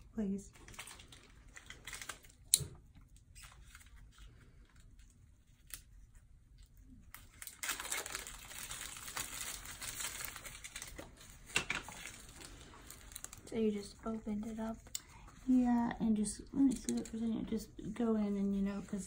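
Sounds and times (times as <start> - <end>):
gauze crinkling rustle: 3.1 - 16.3.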